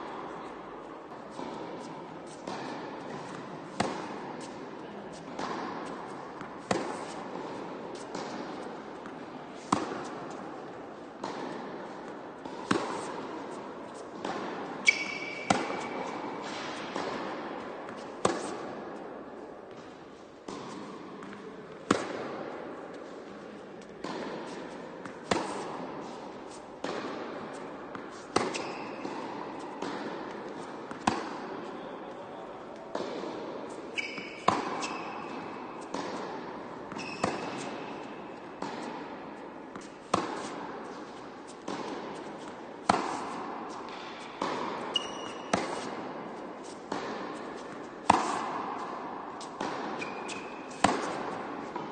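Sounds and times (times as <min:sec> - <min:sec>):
tennis ball bouncing: 0:00.0 - 0:51.9
tennis racket striking ball: 0:00.0 - 0:51.9
short high squeaks: 0:34.0 - 0:35.1.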